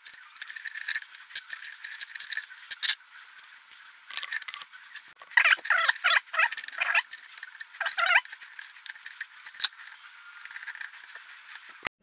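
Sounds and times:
allen key clicking and scraping: 0.0s - 11.8s.

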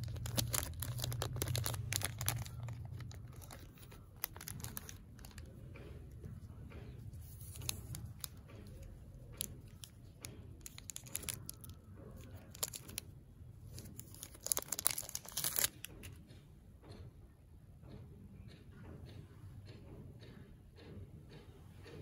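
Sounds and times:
plastic wrapper tearing: 0.0s - 5.4s, 10.6s - 13.0s, 13.8s - 15.9s
plastic wrapper crinkling: 0.0s - 5.5s, 7.2s - 10.0s, 10.6s - 13.0s, 13.7s - 15.9s.

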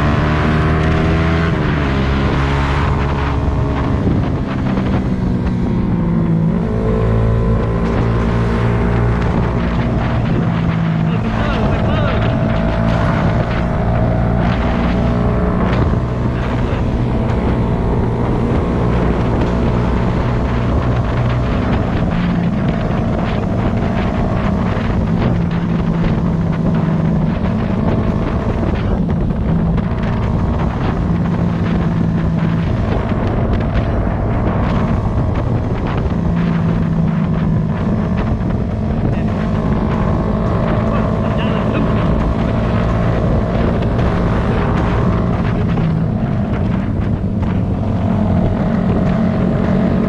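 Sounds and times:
motorcycle engine running: 0.0s - 50.0s
wind buffeting microphone: 0.0s - 50.0s.

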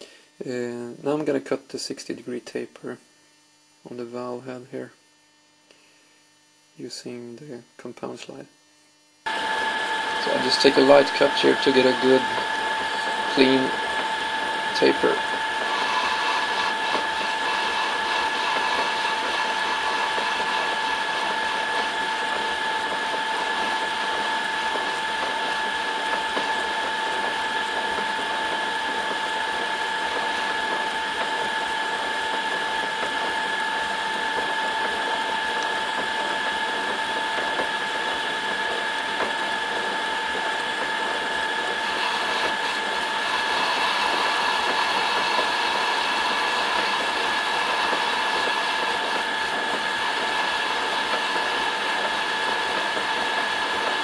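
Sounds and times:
cutting tool hiss: 9.3s - 33.5s, 40.8s - 54.0s
metal lathe whining: 9.3s - 54.0s.

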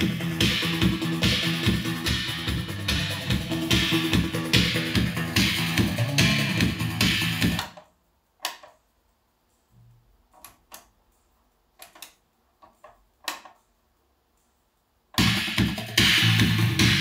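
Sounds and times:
music from speakers: 0.0s - 7.6s, 15.2s - 17.0s
low hum through speakers: 0.0s - 8.3s.

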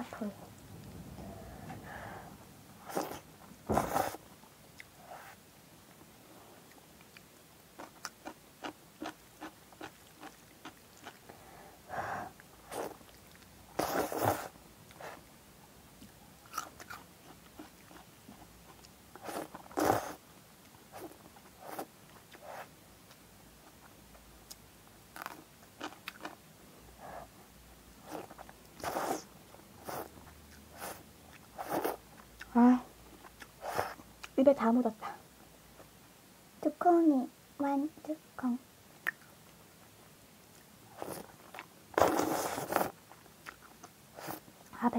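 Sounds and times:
slurping noodles: 42.0s - 43.0s.

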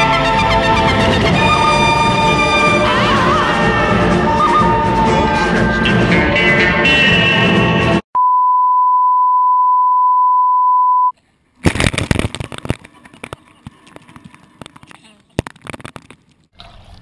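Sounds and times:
background music: 0.0s - 8.0s
steady beep tone: 8.2s - 11.1s.

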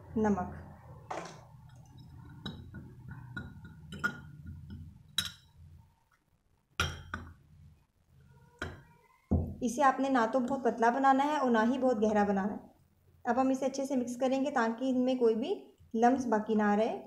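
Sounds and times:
metal spoon clinking on glass: 2.3s - 5.6s.

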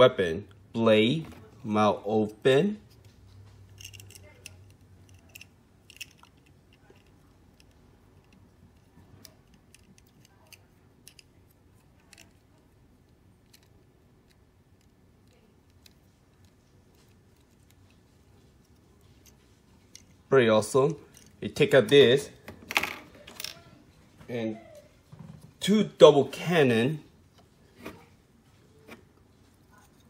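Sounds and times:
plastic model parts clicking: 3.8s - 18.0s.

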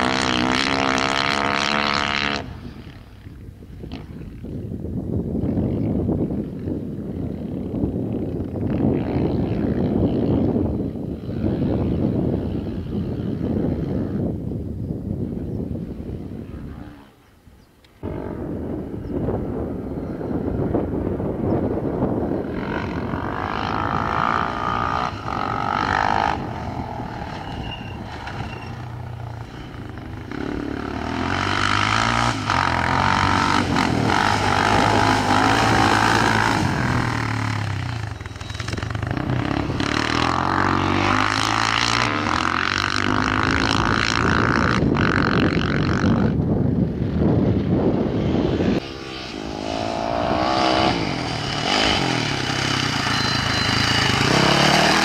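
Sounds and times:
rally engines revving past: 0.0s - 3.0s, 22.4s - 46.4s, 48.2s - 55.0s.

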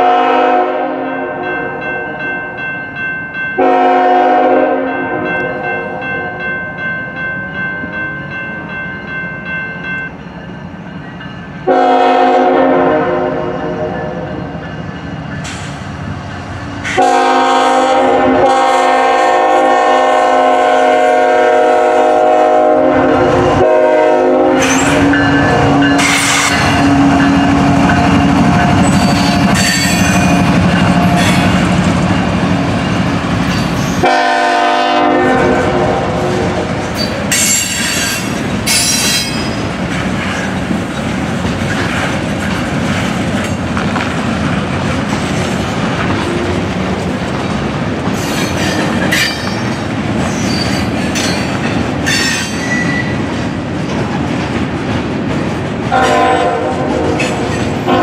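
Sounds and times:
locomotive air horn blasts: 0.0s - 1.8s, 3.6s - 6.0s, 11.6s - 14.3s, 16.9s - 27.1s, 34.0s - 36.7s, 55.9s - 58.0s
locomotive passing: 1.0s - 58.0s
train wheels clattering on rails: 13.6s - 21.6s, 23.6s - 34.8s, 35.6s - 58.0s.

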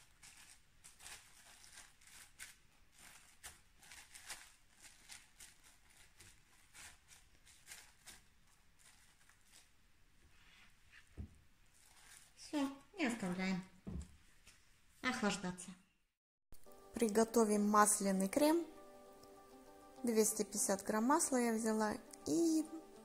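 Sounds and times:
cling film crinkling: 0.0s - 9.9s, 11.6s - 12.8s.

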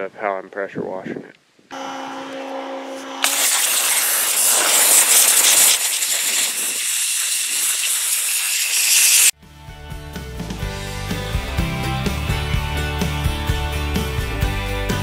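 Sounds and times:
pressure washer motor hum: 3.1s - 9.3s
water jet hissing: 3.2s - 9.3s.

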